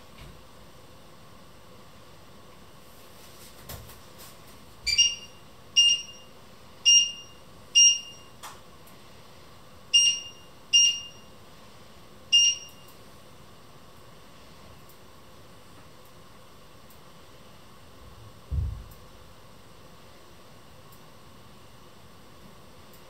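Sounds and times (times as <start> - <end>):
short high appliance beeps: 4.9 - 8.4, 9.9 - 11.3, 12.3 - 13.0.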